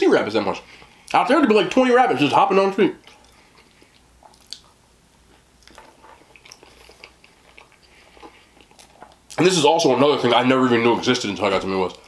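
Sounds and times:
person chewing food: 3.0 - 9.4.

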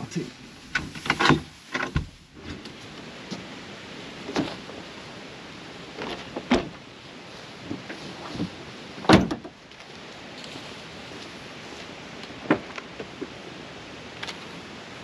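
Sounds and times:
objects knocking and clunking: 0.8 - 2.7.

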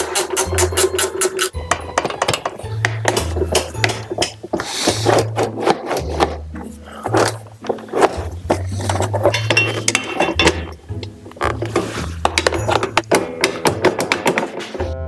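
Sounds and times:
hand tools clinking on metal: 0.0 - 4.6, 8.8 - 10.8.

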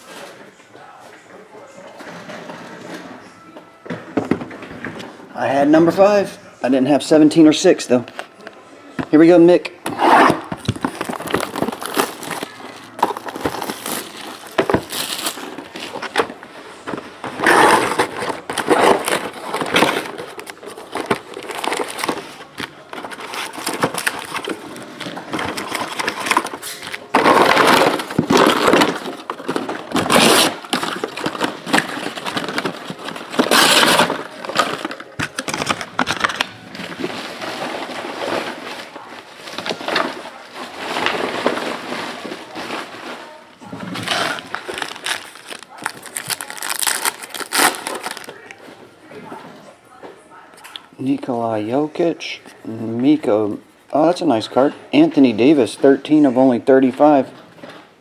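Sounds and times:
card packs rustling: 9.1 - 48.8
plastic wrap crinkling and tearing: 10.0 - 48.6.

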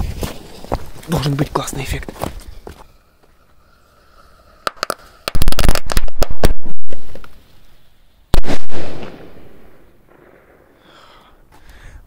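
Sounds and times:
loud firecracker bang: 8.4 - 10.8.

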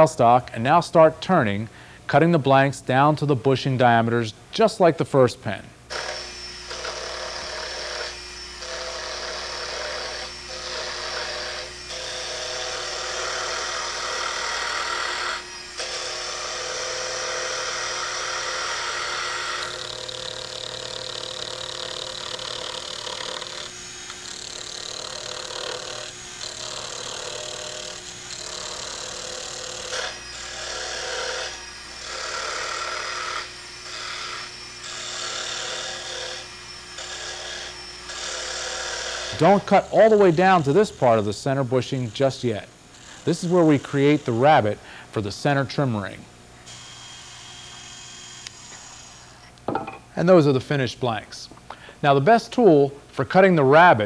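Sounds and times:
chisel scraping spinning wood: 5.9 - 41.3, 42.0 - 44.6.

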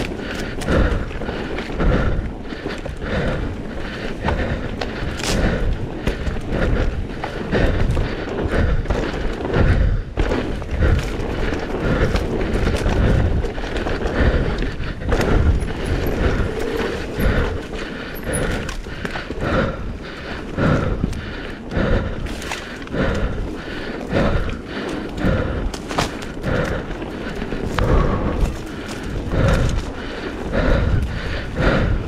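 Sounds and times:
knocks and thuds over bumps: 0.0 - 19.6
bike rolling rumble: 0.0 - 32.0.

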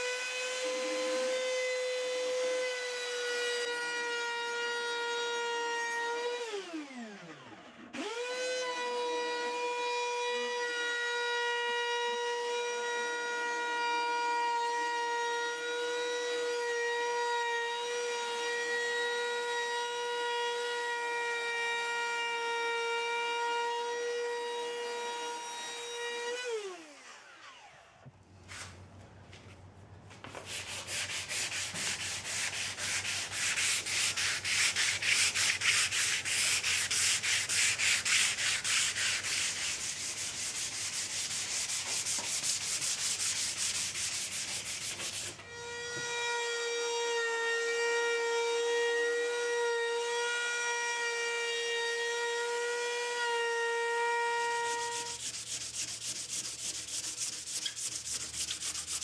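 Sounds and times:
sandpaper rubbing on wood: 30.3 - 45.4, 54.3 - 59.0.

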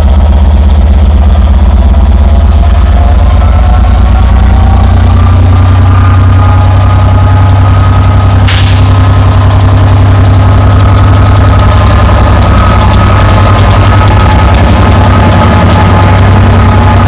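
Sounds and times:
diesel locomotive engine idling: 0.0 - 17.0
air hiss release: 8.5 - 9.0.

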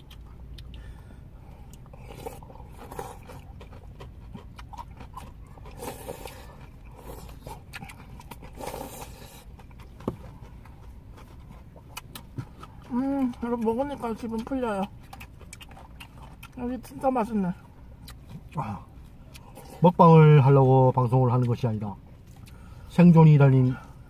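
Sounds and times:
person chewing: 0.0 - 20.7, 21.3 - 22.9
slurping broth: 5.7 - 9.6.

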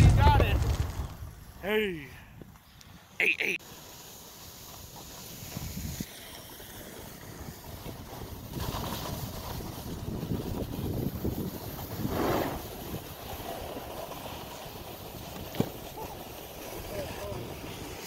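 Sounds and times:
snowboard scraping over snow: 3.6 - 18.0
wind buffeting microphone: 7.2 - 13.2.

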